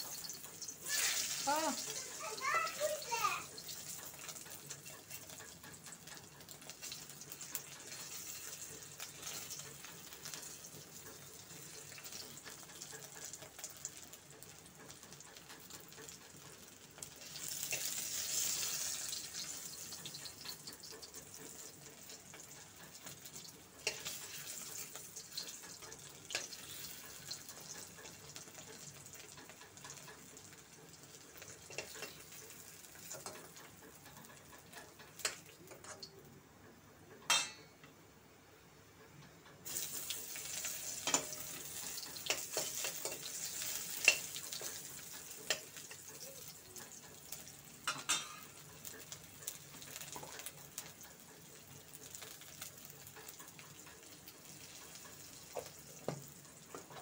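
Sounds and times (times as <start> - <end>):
eggs sizzling in hot oil: 0.0 - 36.3, 39.6 - 57.0
steel spoon clicking on pan: 3.6 - 30.3, 31.4 - 36.1, 37.3 - 37.9, 39.2 - 51.1.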